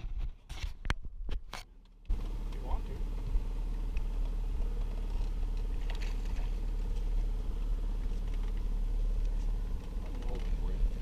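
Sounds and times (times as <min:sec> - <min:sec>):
outboard motor running: 0:01.7 - 0:11.0.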